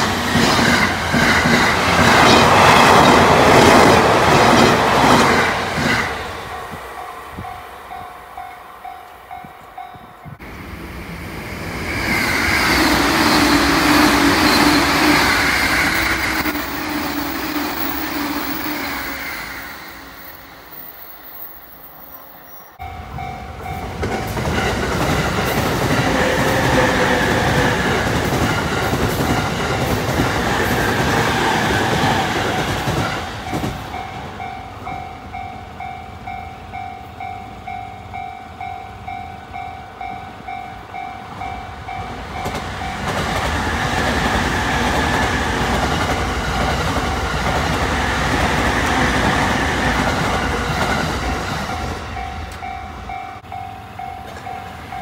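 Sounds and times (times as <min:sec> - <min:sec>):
train wheels clattering on rails: 0:00.0 - 0:08.1, 0:23.1 - 0:35.1, 0:41.9 - 0:55.0
trains rumbling past: 0:00.0 - 0:55.0
level crossing warning bell: 0:06.4 - 0:10.4, 0:22.7 - 0:24.7, 0:33.4 - 0:43.2, 0:51.7 - 0:55.0.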